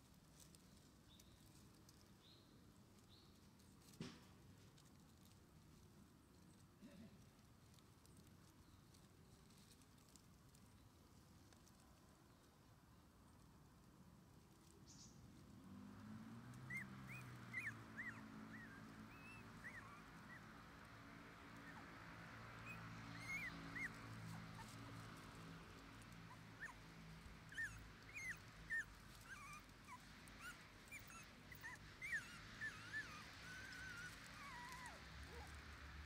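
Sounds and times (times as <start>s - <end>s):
puppy whimpering: 16.6s - 20.5s, 22.6s - 25.3s, 26.3s - 26.9s, 27.5s - 35.6s.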